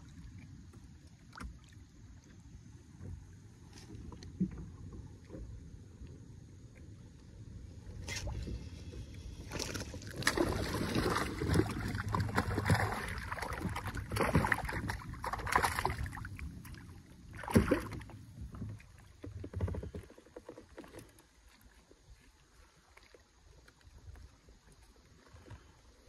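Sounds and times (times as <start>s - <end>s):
fish thrashing and splashing: 9.4s - 16.6s, 17.3s - 18.1s
loud splash: 9.5s - 16.2s, 17.4s - 18.0s.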